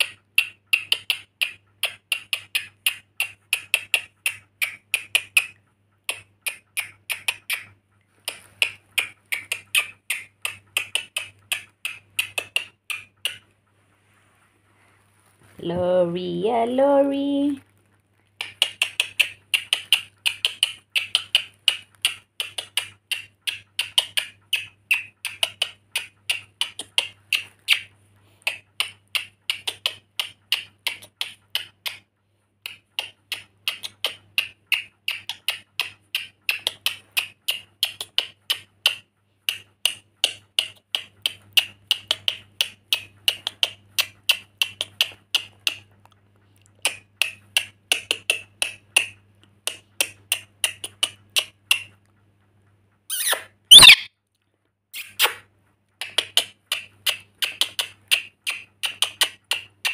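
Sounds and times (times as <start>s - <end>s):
bird giving sharp chirps: 53.1s - 54.1s.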